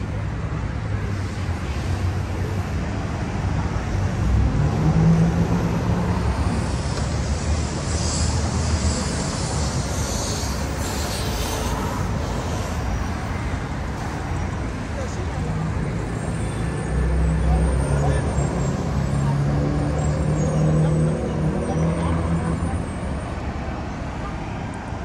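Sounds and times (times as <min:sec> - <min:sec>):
cars and buses passing: 0:00.0 - 0:25.0
louder engine hum passing: 0:01.3 - 0:13.6.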